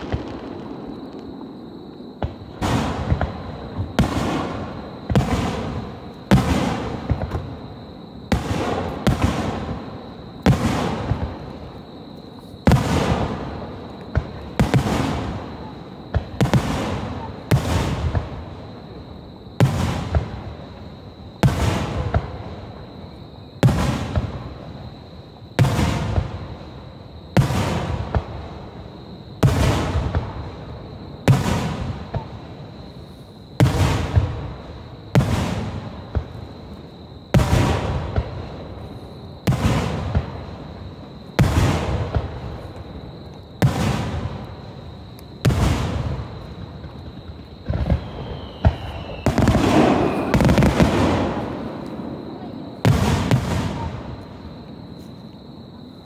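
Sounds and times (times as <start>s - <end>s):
firework shells booming: 0.0s - 7.6s, 37.3s - 55.0s.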